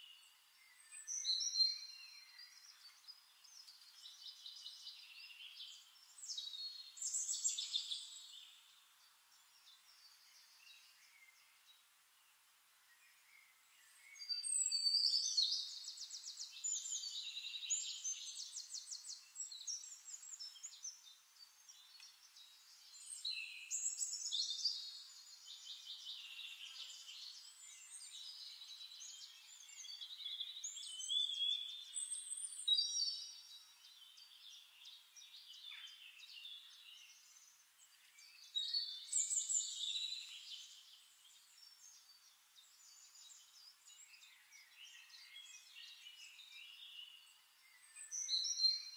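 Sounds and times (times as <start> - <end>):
songbird trills and chirps: 0.0 - 48.9.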